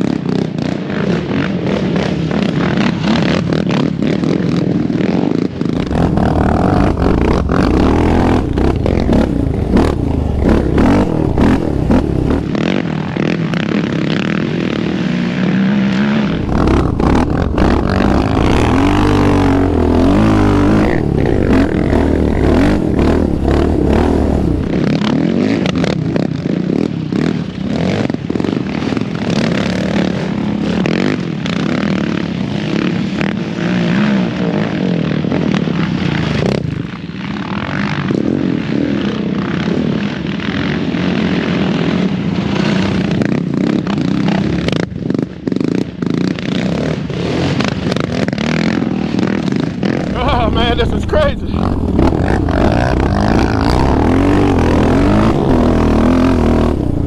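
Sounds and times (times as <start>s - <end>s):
quads riding past: 5.3s - 25.0s, 46.2s - 57.0s
quad engine revving hard: 5.7s - 13.5s, 15.4s - 25.8s, 46.6s - 57.0s.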